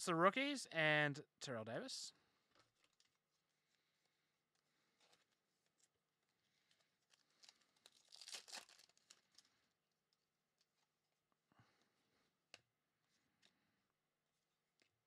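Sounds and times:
foil wrapper tearing and crinkling: 0:06.7 - 0:09.5.

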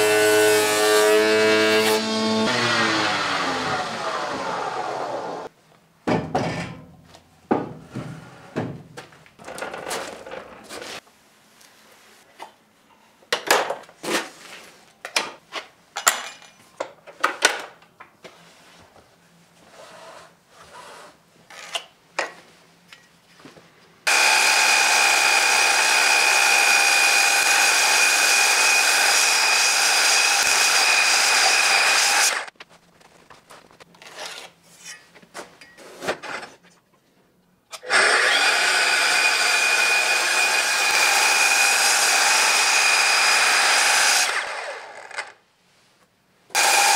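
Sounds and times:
mitre saw cutting with whine: 0:00.0 - 0:05.5, 0:24.1 - 0:32.5, 0:37.8 - 0:45.4, 0:46.5 - 0:46.9
wooden beam knocking and clattering: 0:06.1 - 0:06.9, 0:07.5 - 0:09.1.

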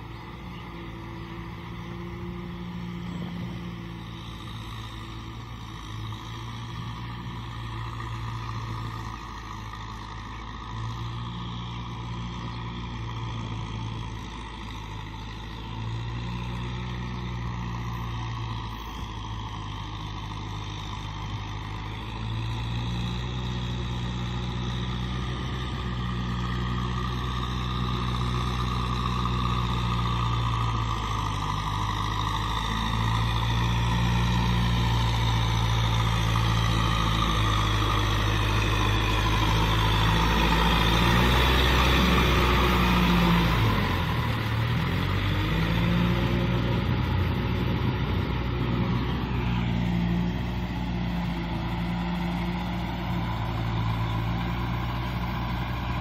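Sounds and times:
tractor diesel engine running: 0:00.0 - 0:56.0.

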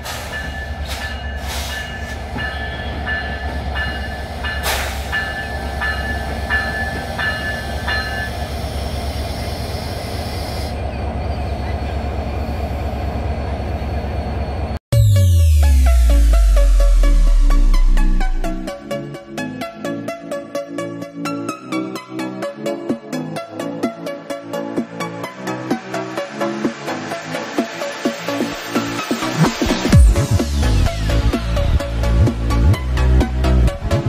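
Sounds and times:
diesel locomotive running: 0:00.0 - 0:18.7
electronic dance music: 0:14.9 - 0:18.7.

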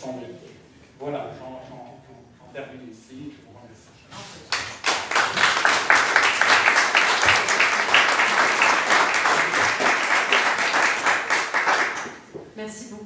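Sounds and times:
audience applauding: 0:04.5 - 0:12.3.

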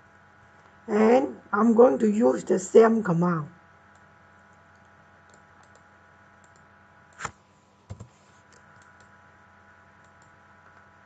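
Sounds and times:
faint electrical hum: 0:00.0 - 0:11.0
computer mouse clicks: 0:03.9 - 0:09.2, 0:10.0 - 0:10.9.

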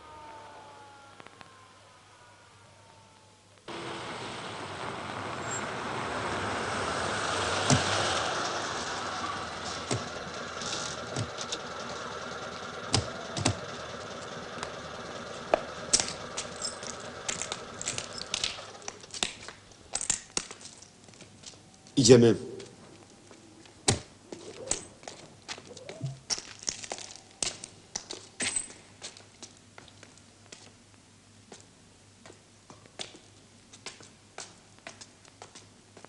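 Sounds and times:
car engines and tyres rushing: 0:03.7 - 0:19.1.

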